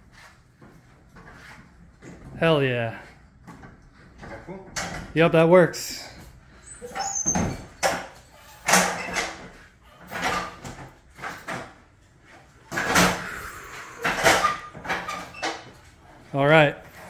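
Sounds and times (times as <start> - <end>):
pallet jack clunks and scrapes: 6.0 - 17.0.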